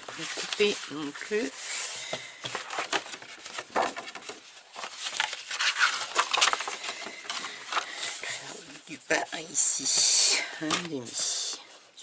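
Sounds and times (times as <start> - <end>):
cardstock rustling and sliding: 0.0 - 8.4.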